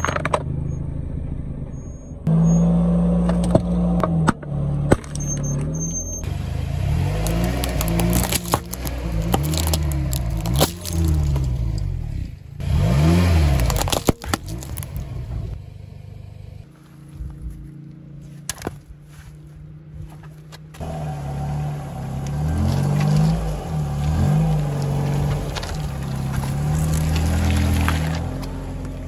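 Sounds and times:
car engine revving: 0:06.2 - 0:16.8, 0:20.7 - 0:29.0
plastic lighters crushing and snapping: 0:07.2 - 0:11.5, 0:13.5 - 0:15.0.

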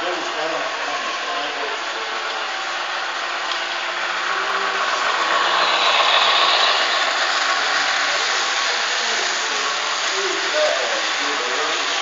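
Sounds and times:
model train running on track: 0:00.0 - 0:12.0.

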